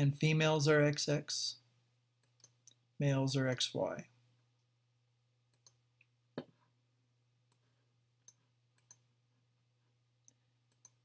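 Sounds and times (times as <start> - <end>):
computer mouse clicks: 2.2 - 2.8, 5.5 - 5.8, 7.5 - 9.0, 10.2 - 11.0.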